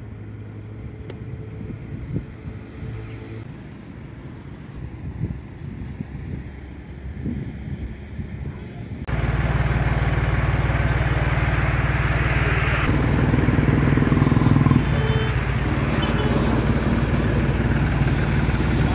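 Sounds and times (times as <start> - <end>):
tractor diesel engine running: 9.1 - 18.9.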